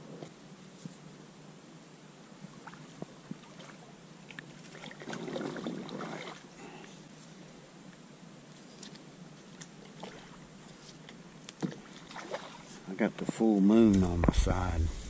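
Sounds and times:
light water noise: 0:02.0 - 0:14.8
paddle swishing through water: 0:02.5 - 0:06.5, 0:09.5 - 0:11.0, 0:11.6 - 0:13.4.

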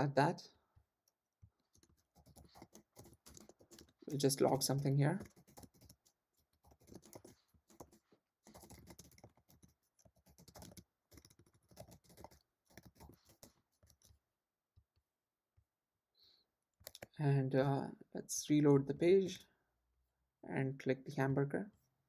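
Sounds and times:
computer keyboard typing: 0:01.7 - 0:14.2, 0:16.8 - 0:17.1.

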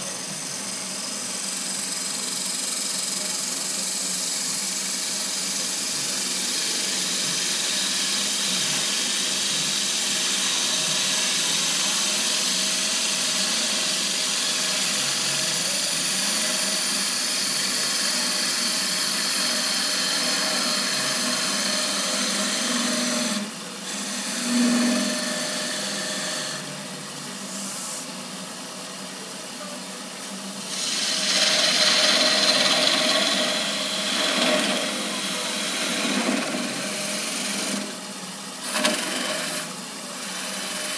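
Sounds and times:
wood lathe spinning: 0:00.0 - 0:29.3, 0:30.3 - 0:40.9
turning tool shaving wood: 0:09.8 - 0:26.7, 0:30.7 - 0:40.9.

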